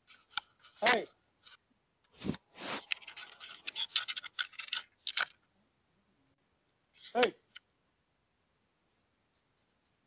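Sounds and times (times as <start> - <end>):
animal scratching on microphone: 2.2 - 4.7.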